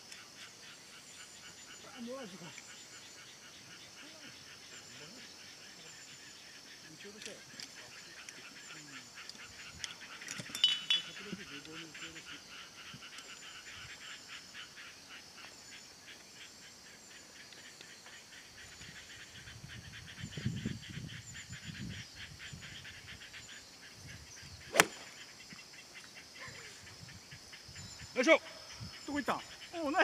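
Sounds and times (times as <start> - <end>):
insects chirping: 0.0 - 30.0
golf club striking ball: 24.7 - 25.2.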